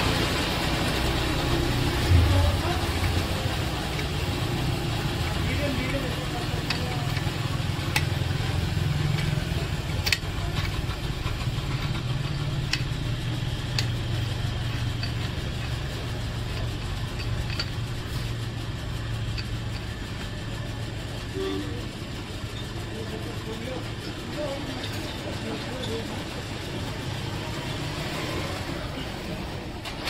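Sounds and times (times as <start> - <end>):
low engine hum: 0.0 - 24.5
metallic clicks of gears: 5.2 - 20.0.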